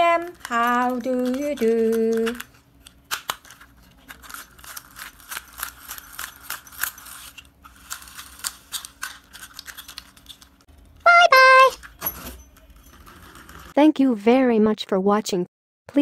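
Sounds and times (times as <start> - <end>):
plastic toy car clicks and rattles: 0.2 - 10.7.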